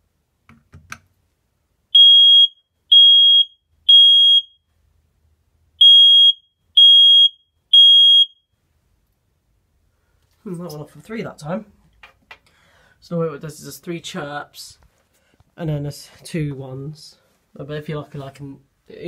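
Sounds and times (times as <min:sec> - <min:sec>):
smoke alarm beeping: 0:02.0 - 0:04.7, 0:05.8 - 0:08.5.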